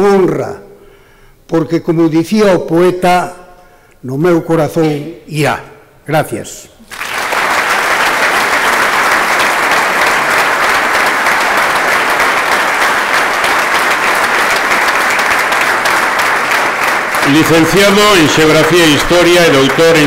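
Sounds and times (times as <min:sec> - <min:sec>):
audience applause: 0:06.8 - 0:20.0.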